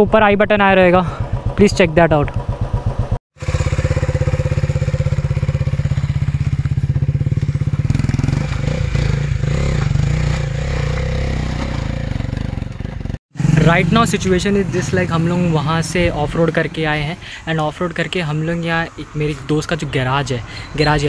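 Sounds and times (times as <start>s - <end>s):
motorcycle engine running: 0.7s - 18.6s.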